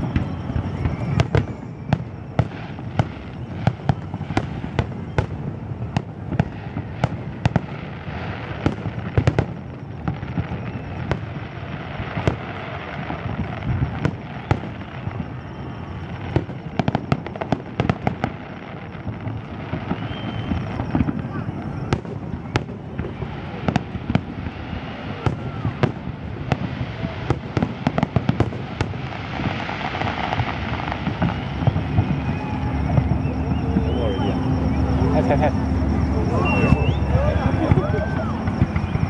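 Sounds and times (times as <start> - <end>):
continuous din: 30.0 - 39.0.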